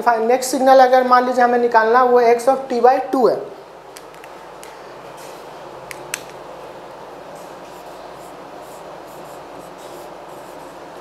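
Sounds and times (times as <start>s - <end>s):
room hiss: 2.4s - 11.0s
marker scratching on whiteboard: 7.3s - 11.0s.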